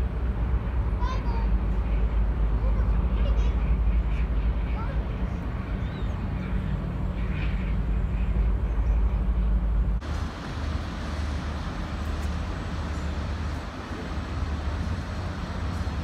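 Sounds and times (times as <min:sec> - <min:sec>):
diesel engines rumbling: 0:00.0 - 0:16.0
water wash hissing: 0:10.0 - 0:16.0.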